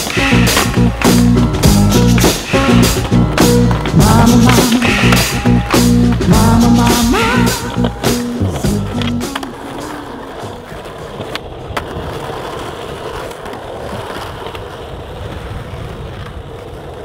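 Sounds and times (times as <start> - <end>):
skateboard wheels rolling on asphalt: 0.0 - 17.0.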